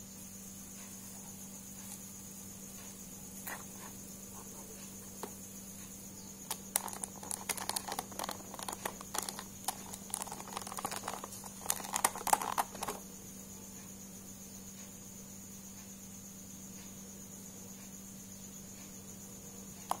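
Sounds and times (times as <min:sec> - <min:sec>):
plastic case clicks and rattles: 0:06.5 - 0:13.0.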